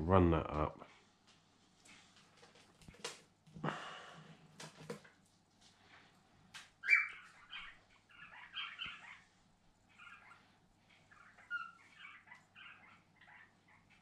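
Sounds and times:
cockatiel chirps: 6.8s - 9.2s
cockatiel squawk: 6.8s - 9.3s, 10.0s - 10.4s, 11.1s - 13.8s.

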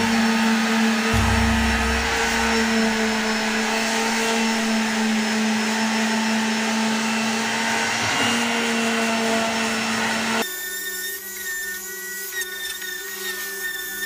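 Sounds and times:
electric sander whining: 0.0s - 10.5s.

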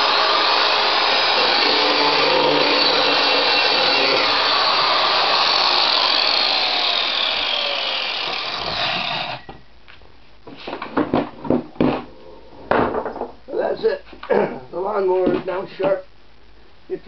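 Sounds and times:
angle grinder on mower blade: 0.0s - 9.5s
grinder winding down whine: 0.0s - 9.5s.

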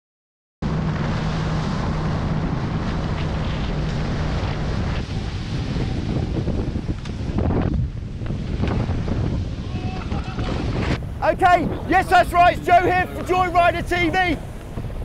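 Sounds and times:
low steady hum: 0.6s - 8.2s
water rushing along hulls: 0.6s - 15.0s
wind buffeting microphone: 0.6s - 15.0s.

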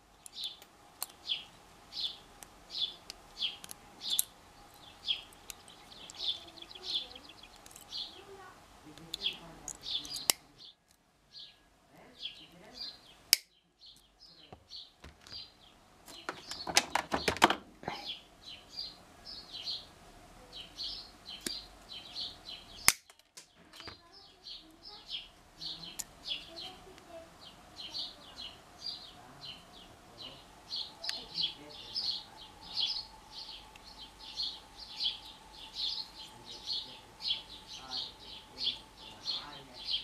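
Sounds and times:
bird chirping: 0.0s - 40.0s
sharp clicks: 22.8s - 23.9s.

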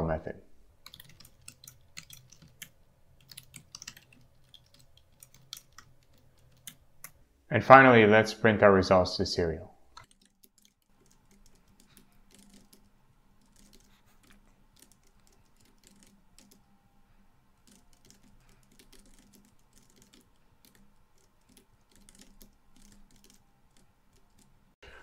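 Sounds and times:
typing on computer keyboard: 0.8s - 7.2s, 10.0s - 16.7s, 17.6s - 24.5s.

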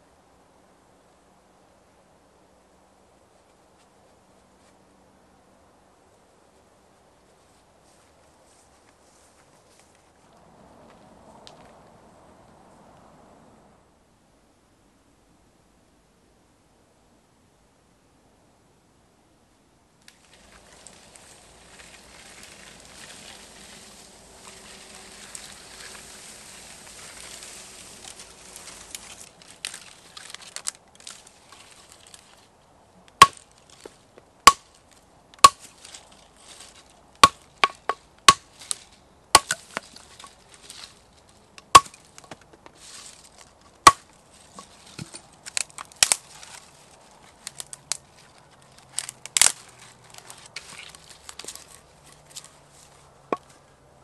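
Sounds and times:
footsteps through grass: 7.2s - 11.8s, 20.1s - 32.5s, 34.7s - 37.6s, 38.4s - 53.6s
hatchet chopping branches: 20.1s - 32.2s, 33.1s - 34.8s, 35.4s - 40.9s, 41.6s - 46.7s, 49.0s - 52.5s.

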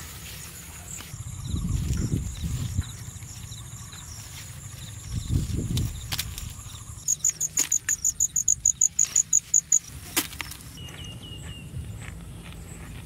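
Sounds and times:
leaves rustling: 0.0s - 8.3s
insect chirping: 0.0s - 10.8s.

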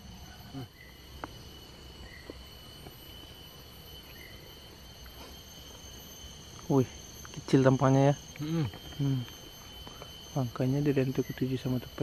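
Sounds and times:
insect chorus: 0.0s - 12.0s.

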